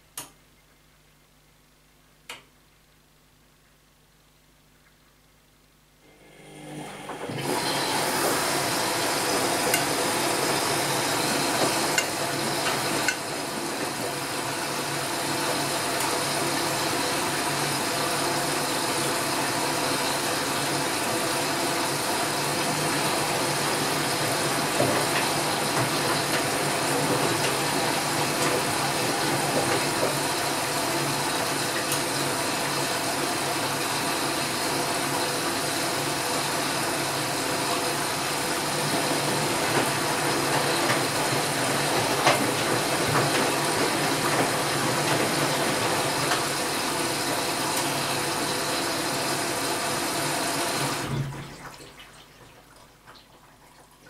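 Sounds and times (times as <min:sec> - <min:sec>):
washing machine drum turning: 0:07.0 - 0:51.8
water and laundry sloshing: 0:07.1 - 0:54.0.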